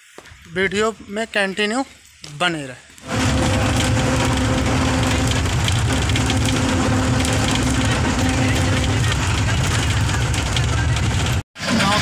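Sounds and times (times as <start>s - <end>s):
steady hum: 3.0s - 11.0s
bus engine rumble: 3.1s - 12.0s.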